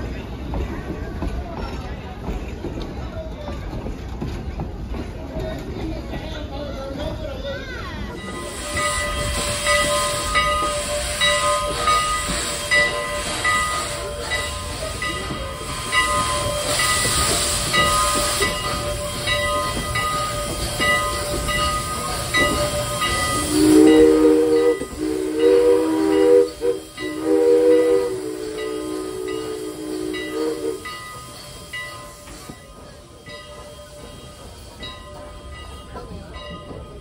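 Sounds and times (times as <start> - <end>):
steam hiss: 8.1 - 37.0
steam whistle blasts: 22.5 - 31.2.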